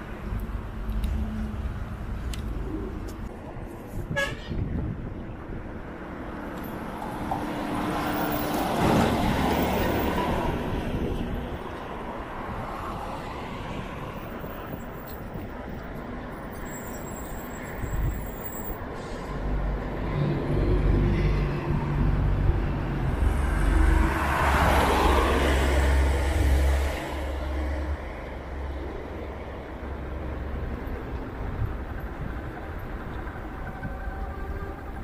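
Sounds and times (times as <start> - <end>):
traffic noise: 0.0 - 35.0
tyre and road noise: 0.0 - 35.0.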